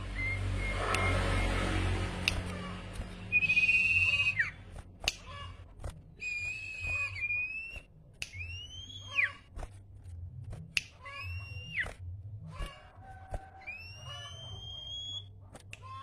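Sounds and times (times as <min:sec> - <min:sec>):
songbird whistling: 0:00.0 - 0:01.7, 0:03.2 - 0:04.6, 0:06.2 - 0:09.4, 0:11.1 - 0:11.9, 0:13.6 - 0:15.4
sharp clicks: 0:02.1 - 0:08.7.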